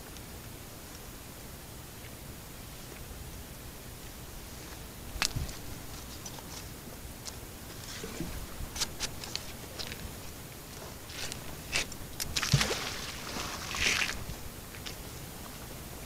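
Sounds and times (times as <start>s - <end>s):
rope crunching and scraping: 7.7s - 14.4s.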